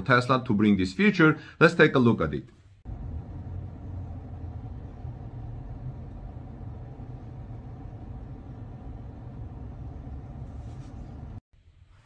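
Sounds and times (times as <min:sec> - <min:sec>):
low rumble inside car cabin: 0:02.9 - 0:11.4.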